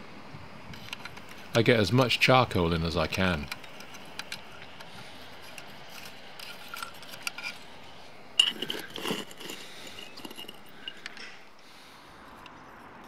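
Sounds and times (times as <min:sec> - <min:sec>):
charcoal lumps clinking and scraping: 0:00.9 - 0:11.4
light metal clinks: 0:08.4 - 0:11.5.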